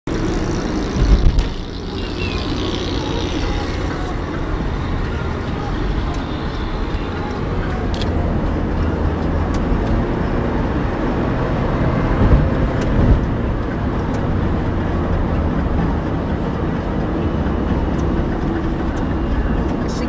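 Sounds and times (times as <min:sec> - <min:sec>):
low thumps: 0:00.1 - 0:05.1
car cabin road rumble: 0:00.1 - 0:20.0.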